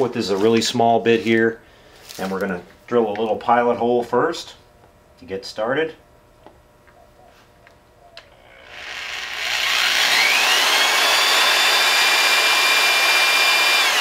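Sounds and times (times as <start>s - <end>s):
electric drill motor whine: 8.2s - 14.0s.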